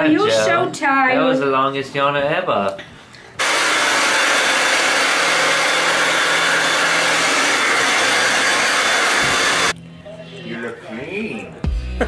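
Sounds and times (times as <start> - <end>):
hair dryer blowing: 3.4 - 9.8.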